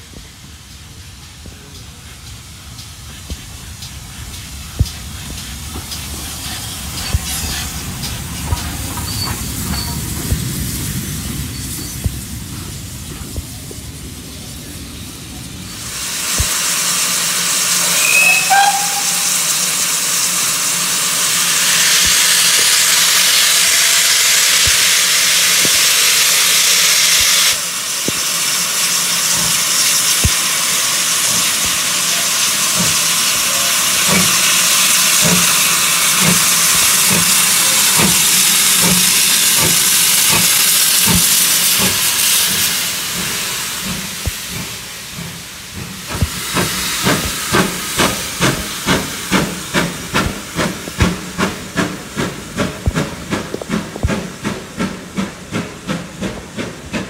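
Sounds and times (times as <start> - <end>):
steam locomotive hissing: 0.0 - 57.0
locomotive exhaust chuffs: 27.8 - 57.0.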